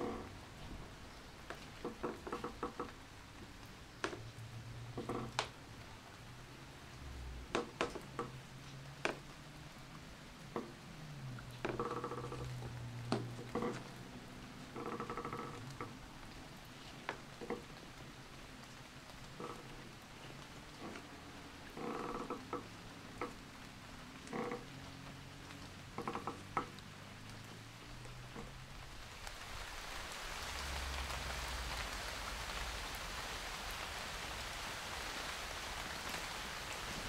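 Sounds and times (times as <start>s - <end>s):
wooden boards creaking: 0.0s - 5.7s, 7.2s - 9.4s, 10.4s - 16.2s, 16.8s - 18.3s, 19.2s - 23.6s, 24.2s - 28.8s.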